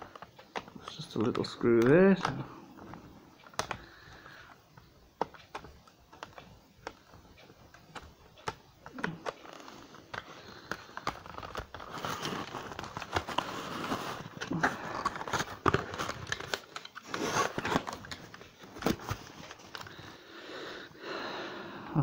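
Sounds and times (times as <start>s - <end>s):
cardboard box rustling and scraping: 11.3s - 18.2s.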